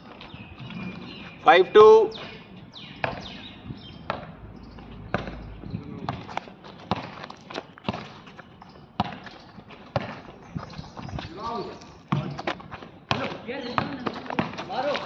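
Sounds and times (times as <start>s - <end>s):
basketball bouncing on hard court: 3.0s - 3.4s, 4.0s - 4.4s, 5.1s - 8.3s, 9.0s - 11.2s, 12.1s - 15.0s.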